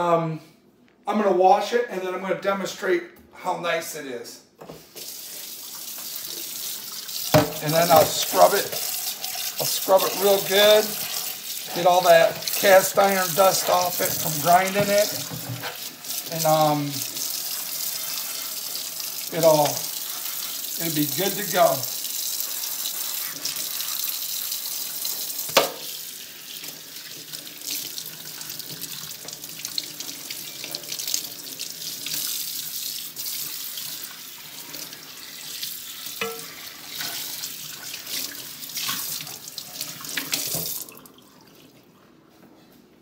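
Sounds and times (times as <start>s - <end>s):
tap water running into sink: 4.8s - 41.6s
water splashing over skillet: 5.0s - 41.2s.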